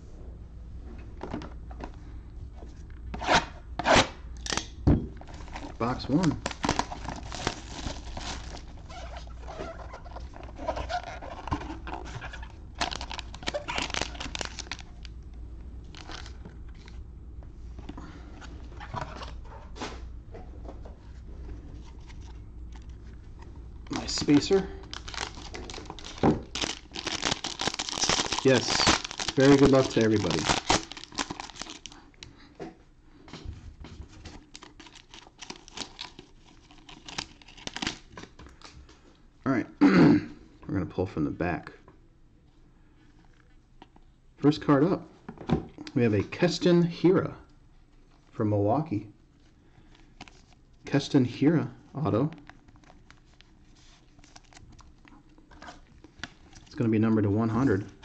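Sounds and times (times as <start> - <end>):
plastic wrap crinkling: 5.2 - 15.1, 15.8 - 17.0, 23.8 - 32.2, 34.3 - 38.7, 52.2 - 56.8
foil pack pulled out: 24.0 - 32.0.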